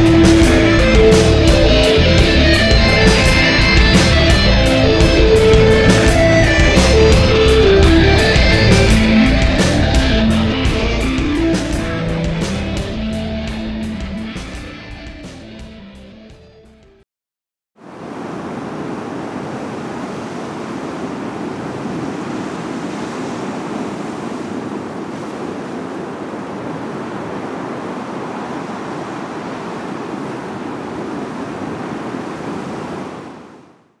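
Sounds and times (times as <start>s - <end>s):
wind: 0.0s - 15.0s, 17.8s - 34.0s
surf breaking over rocks: 17.8s - 33.9s.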